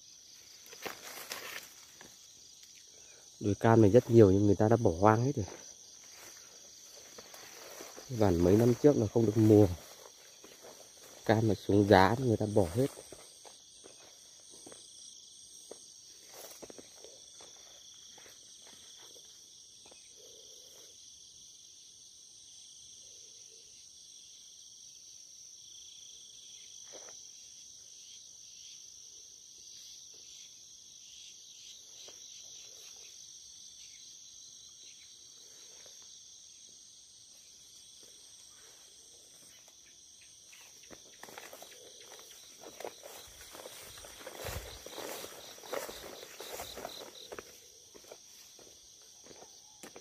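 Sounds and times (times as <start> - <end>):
crickets trilling: 0.0 - 50.0
footsteps through weeds: 0.3 - 2.3, 5.5 - 14.8, 15.7 - 19.3, 40.6 - 50.0
rustling through weeds: 0.4 - 2.2, 6.0 - 13.3, 40.9 - 48.7.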